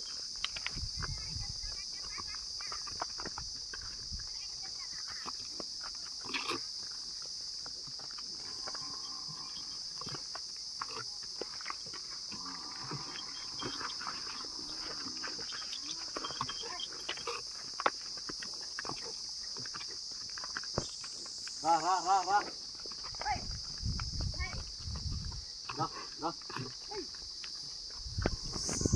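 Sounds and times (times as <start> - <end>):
hooves knocking on dirt: 0.0 - 28.9
low animal calls: 12.3 - 17.4
steady high buzz: 28.2 - 28.9.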